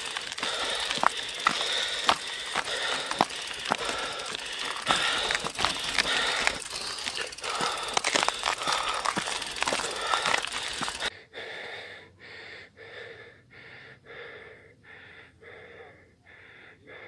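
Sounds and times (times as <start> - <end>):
bike knocking over rough ground: 0.0 - 11.1
freewheel hub ratchet clicking: 0.0 - 11.1.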